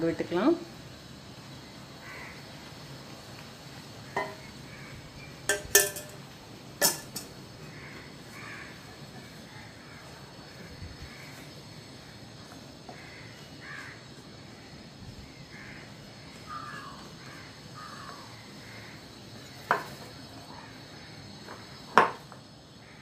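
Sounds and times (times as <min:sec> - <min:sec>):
spoon knocking on bowl: 0:04.2 - 0:04.4, 0:05.5 - 0:06.2
bird calling: 0:15.4 - 0:20.8.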